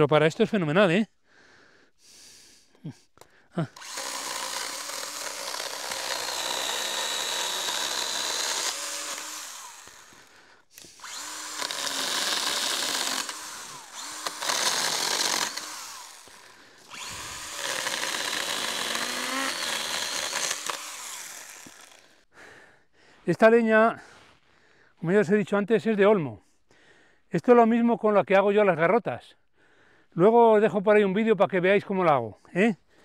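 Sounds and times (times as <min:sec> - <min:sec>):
electric chainsaw cutting branches: 0:03.7 - 0:22.2.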